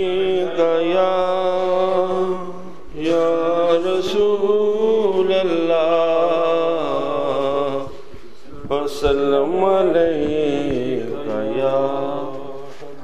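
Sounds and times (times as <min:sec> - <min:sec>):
man singing unaccompanied: 0:00.0 - 0:08.0, 0:08.6 - 0:12.8.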